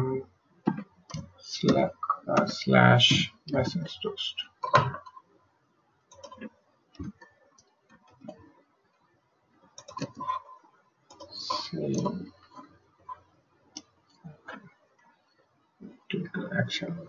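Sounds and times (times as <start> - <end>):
keyboard typing: 0.7 - 5.2, 6.1 - 8.4, 9.7 - 13.2.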